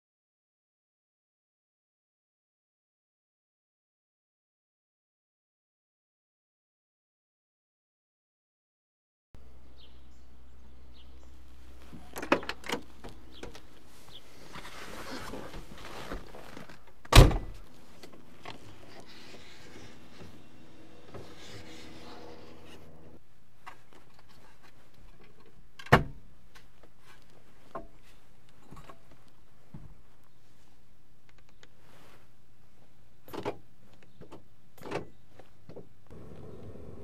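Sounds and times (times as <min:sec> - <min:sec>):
heavy car door thunk: 0:17.1 - 0:17.6.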